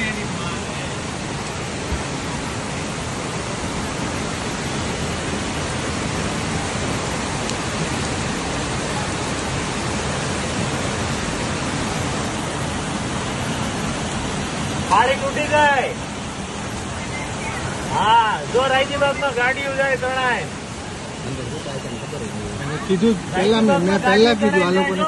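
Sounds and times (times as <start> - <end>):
floodwater rushing: 0.0 - 25.0
heavy rain: 0.0 - 25.0.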